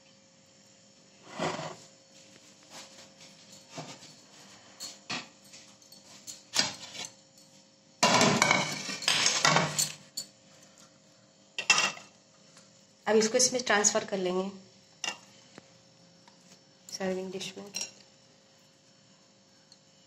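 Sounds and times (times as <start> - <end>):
dish clattering and scraping: 1.3 - 1.8, 8.0 - 10.0, 11.6 - 12.1.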